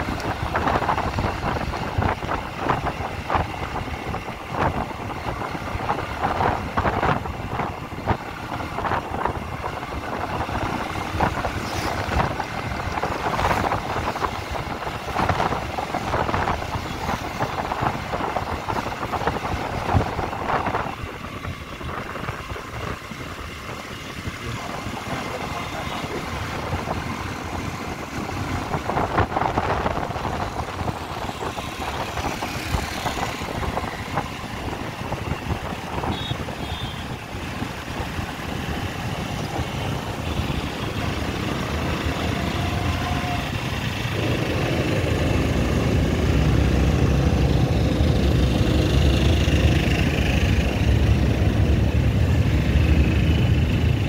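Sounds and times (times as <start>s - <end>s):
road noise: 0.0s - 54.0s
wind on microphone: 26.5s - 54.0s.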